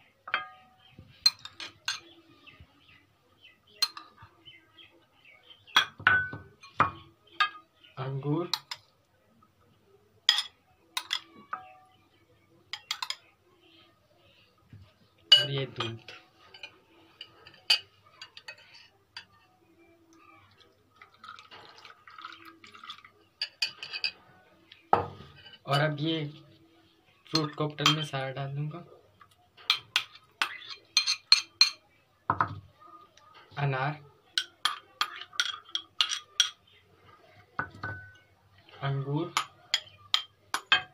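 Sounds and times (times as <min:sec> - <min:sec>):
spoon clinking against glass: 0:00.3 - 0:02.2, 0:03.8 - 0:04.3, 0:05.7 - 0:07.7, 0:10.3 - 0:11.9, 0:12.7 - 0:13.3, 0:15.3 - 0:19.5, 0:21.2 - 0:24.2, 0:27.3 - 0:28.2, 0:29.7 - 0:32.5, 0:34.4 - 0:36.6, 0:37.6 - 0:38.3, 0:39.3 - 0:40.9
milk trickling into bowl: 0:20.4 - 0:23.3.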